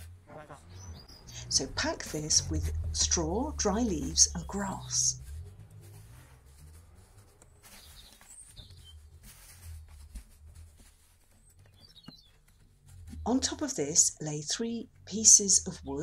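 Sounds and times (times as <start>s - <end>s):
low background rumble: 0.0s - 7.6s, 12.5s - 16.0s
rustling of dry leaves and straw: 1.4s - 13.5s.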